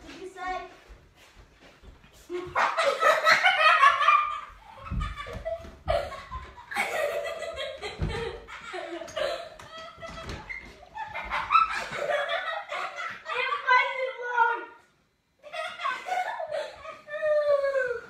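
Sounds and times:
laughter: 2.3s - 13.9s, 15.4s - 18.0s.

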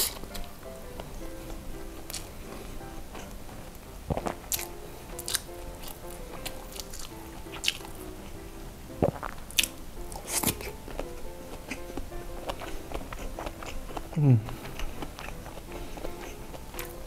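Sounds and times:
soft melodic background music: 0.0s - 17.0s
man chewing with wet mouth smacks: 1.4s - 2.3s, 4.1s - 8.1s, 9.0s - 17.0s.

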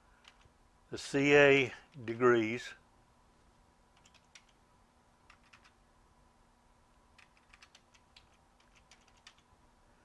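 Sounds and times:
faint steady hum: 0.0s - 10.0s
computer keyboard typing: 0.2s - 0.5s, 4.0s - 4.6s, 5.3s - 5.8s, 7.1s - 9.5s.

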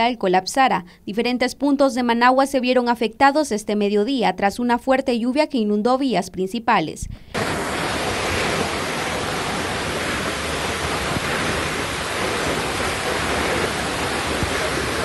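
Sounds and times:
floodwater rushing through channel: 7.4s - 15.0s.

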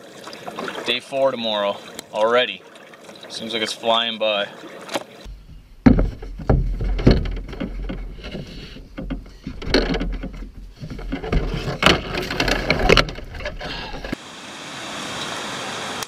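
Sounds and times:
low handling rumble: 5.3s - 14.2s
paddle knocking canoe hull: 5.3s - 14.2s.

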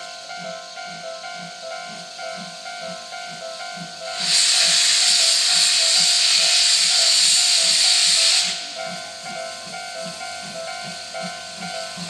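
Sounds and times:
steam locomotive venting steam: 0.0s - 12.0s.

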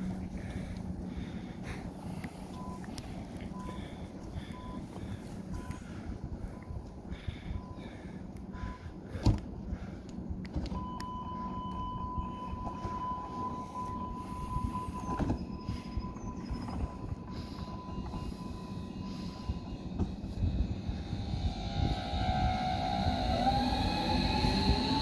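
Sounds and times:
train humming: 0.0s - 25.0s
door-closing warning tone: 10.7s - 25.0s.

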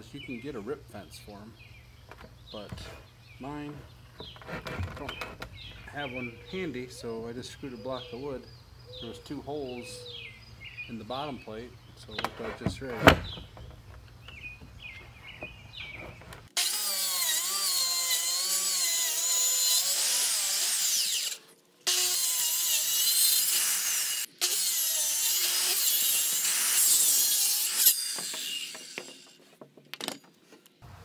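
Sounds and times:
circular saw cutting wood: 16.5s - 29.4s.

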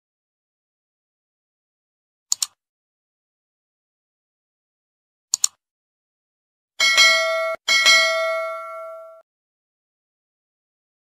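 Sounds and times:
mouse clicks: 2.3s - 2.6s, 5.3s - 5.6s
bell ringing: 6.8s - 9.2s.

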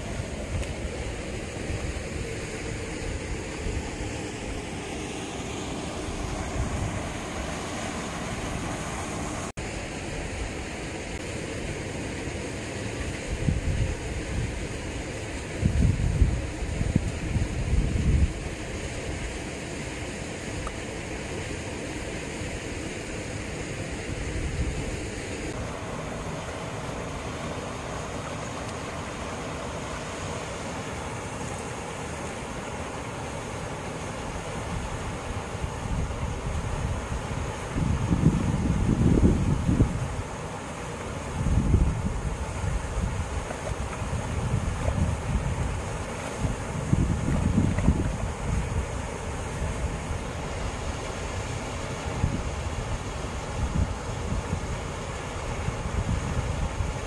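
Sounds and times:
steady rushing outdoor noise: 0.0s - 57.0s
wind rumbling on microphone: 5.8s - 9.5s, 13.1s - 19.3s, 23.9s - 25.6s, 34.6s - 40.3s, 41.3s - 57.0s.

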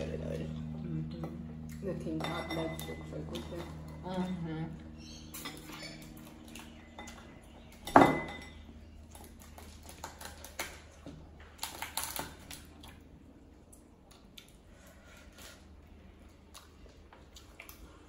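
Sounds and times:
tableware clinking: 2.1s - 3.7s, 6.9s - 8.7s.

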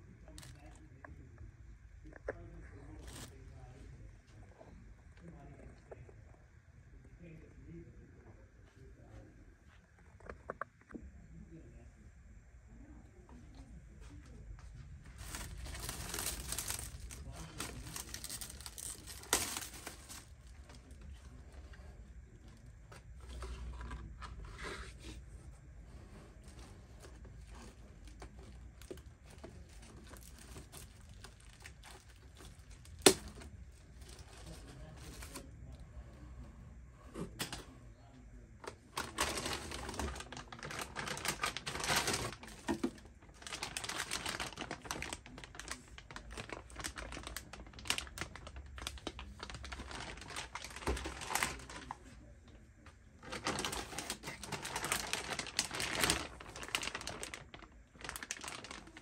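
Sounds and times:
plastic bags crinkling: 0.2s - 0.8s, 2.9s - 3.4s, 15.0s - 24.4s, 25.9s - 35.5s, 38.6s - 52.1s, 53.2s - 59.0s.

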